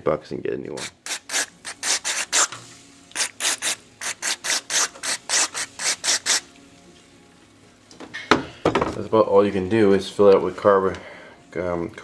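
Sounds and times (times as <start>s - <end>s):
aerosol spray hissing bursts: 0.8s - 6.5s.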